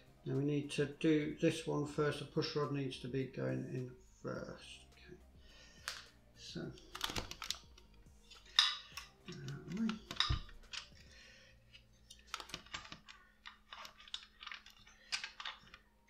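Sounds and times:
model parts clicking and rustling: 0:06.8 - 0:16.0.

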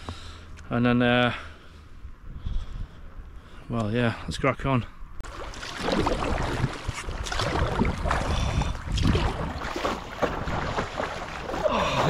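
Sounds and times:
paddle splashing through water: 0:05.2 - 0:12.0
wind buffeting microphone: 0:05.6 - 0:12.0.

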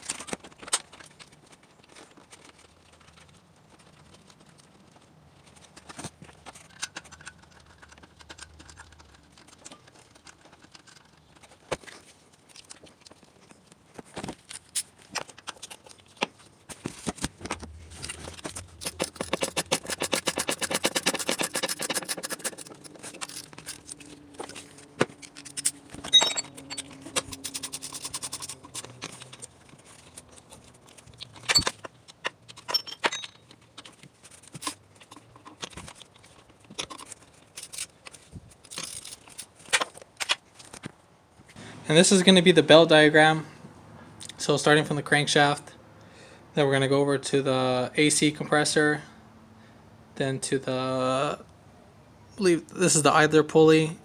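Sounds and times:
ratchet wrench clicking: 0:18.8 - 0:23.8
sharp metal clank: 0:26.1 - 0:26.9.

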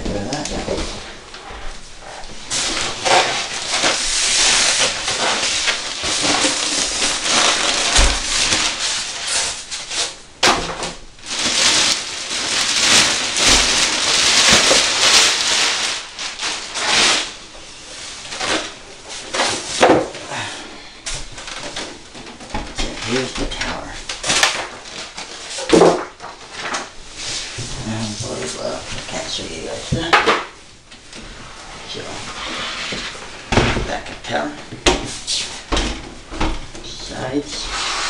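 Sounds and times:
plastic bag crinkling: 0:02.4 - 0:10.2, 0:11.2 - 0:19.7.

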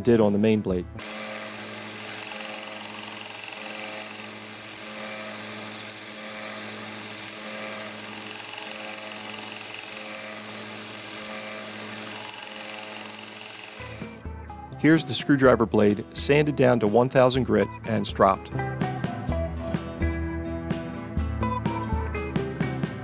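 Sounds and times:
belt sander motor humming: 0:01.0 - 0:14.2.

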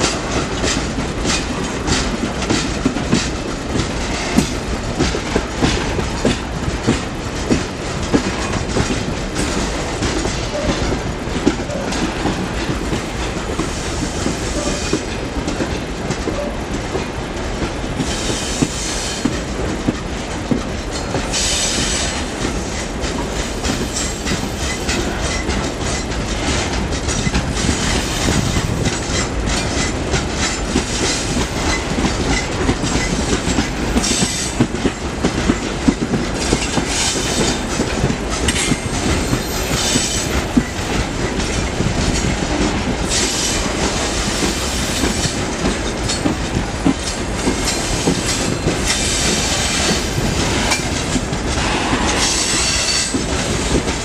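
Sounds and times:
train wheels clicking over rail joints: 0:00.0 - 0:54.0.

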